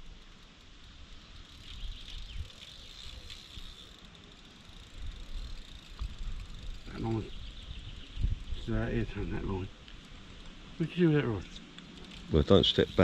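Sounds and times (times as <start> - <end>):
fishing reel ticking: 0.0 - 10.5, 11.8 - 13.0
wind rumble: 4.9 - 10.8.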